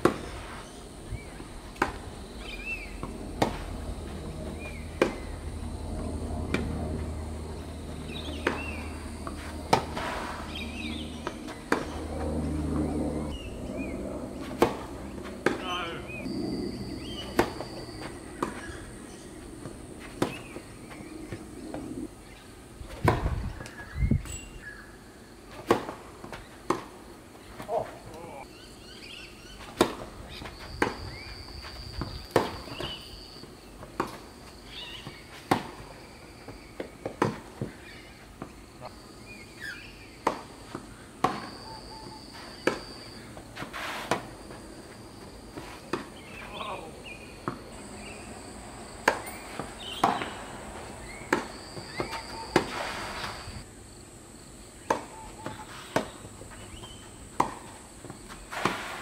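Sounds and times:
tennis ball hit by racquet: 0.0s - 0.6s, 1.3s - 3.7s, 4.6s - 5.3s, 6.5s - 6.8s, 8.1s - 12.0s, 14.5s - 16.2s, 17.2s - 18.7s, 19.6s - 21.8s, 22.9s - 23.7s, 25.5s - 27.0s, 29.6s - 30.1s, 32.0s - 33.0s, 35.0s - 35.9s, 36.8s - 37.8s, 40.2s - 41.6s, 43.6s - 44.3s, 49.0s - 50.4s, 51.0s - 53.4s, 54.8s - 59.0s
high-pitched insect drone: 2.1s - 14.3s, 15.8s - 19.3s, 41.3s - 43.4s.

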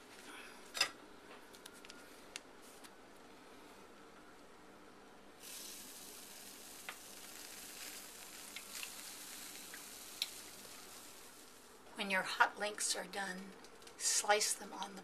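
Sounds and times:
food sizzling: 5.4s - 11.9s.

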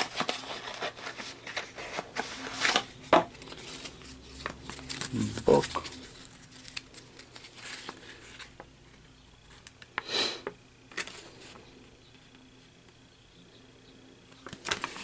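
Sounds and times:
paper leaflet rustling: 0.0s - 8.6s, 14.4s - 15.0s.

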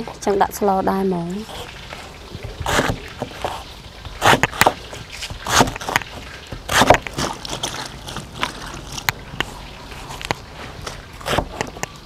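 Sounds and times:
knife cutting on wooden board: 2.4s - 7.9s, 10.0s - 11.9s.

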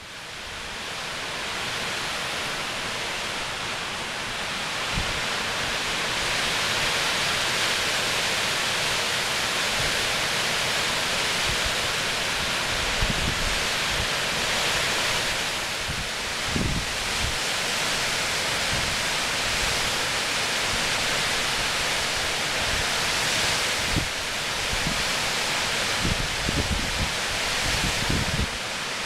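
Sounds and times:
strong wind driving snow: 0.0s - 29.0s
wind buffeting microphone: 15.8s - 17.4s, 26.0s - 28.6s.

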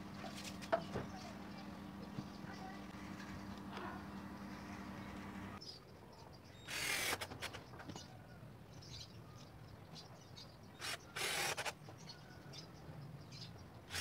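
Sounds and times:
cordless drill driving screw: 6.7s - 7.6s, 10.8s - 11.8s.

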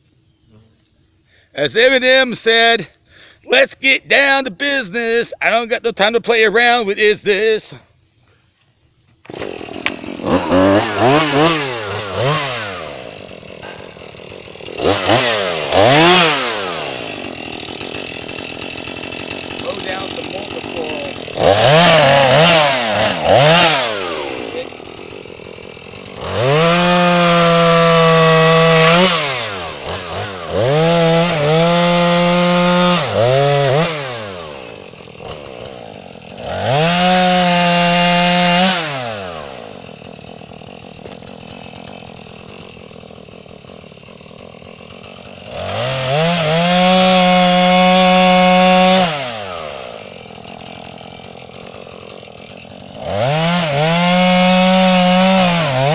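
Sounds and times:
chainsaw cutting log: 9.1s - 55.9s.

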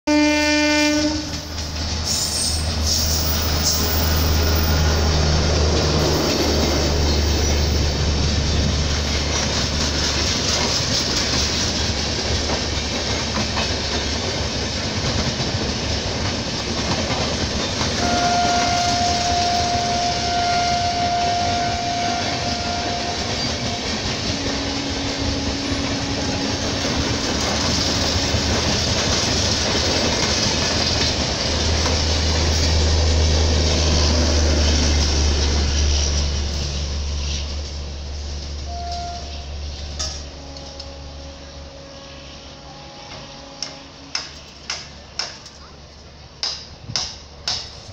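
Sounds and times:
train horn: 0.1s - 5.4s, 17.8s - 29.5s, 38.6s - 44.9s
train wheels clacking on rails: 0.6s - 41.0s, 43.0s - 47.9s.

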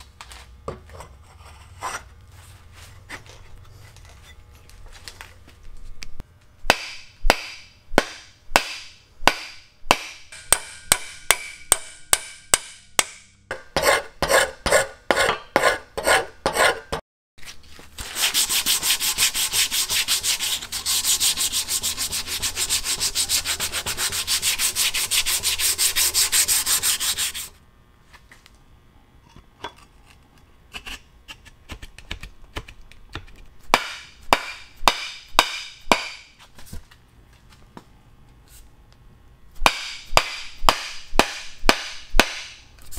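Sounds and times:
mallet striking wooden handle: 6.7s - 13.7s, 33.8s - 36.2s, 39.6s - 42.6s.

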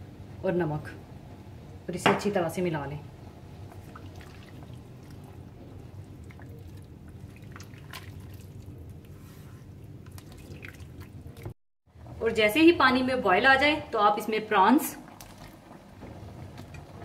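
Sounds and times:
low steady hum: 0.0s - 17.0s
liquid bubbling in a pan: 3.1s - 12.2s, 14.9s - 17.0s.

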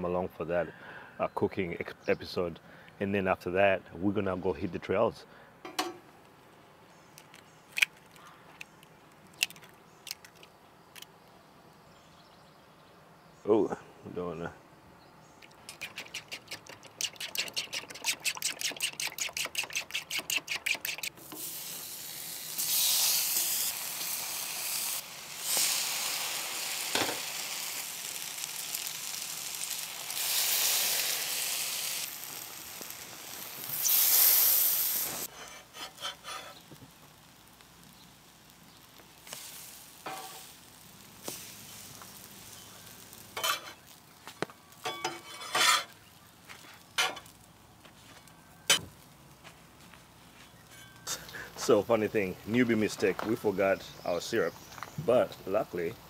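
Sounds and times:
rhythmic stirring strokes: 15.6s - 21.2s
bread sizzling in a hot pan: 17.0s - 47.8s.

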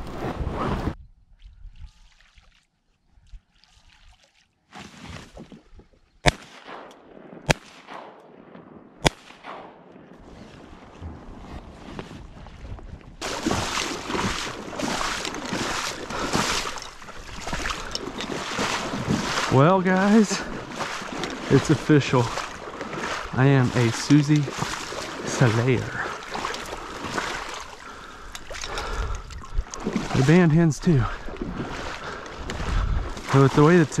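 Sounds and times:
shotgun shots: 6.2s - 10.2s
kayak splashing through reeds: 10.2s - 34.0s.

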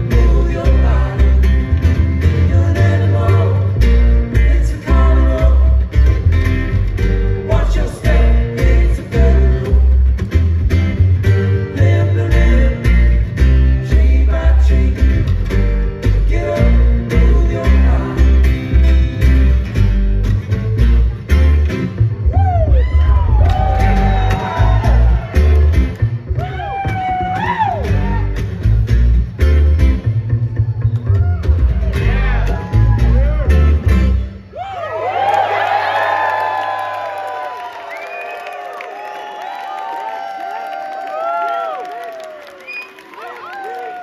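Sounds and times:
double bass plucking: 0.0s - 34.5s
acoustic guitars: 0.0s - 34.7s.

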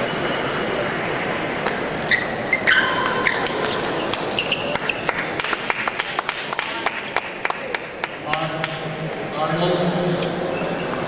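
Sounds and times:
hall background noise: 0.0s - 11.0s
brief squeaks: 1.4s - 5.0s, 10.2s - 11.0s.

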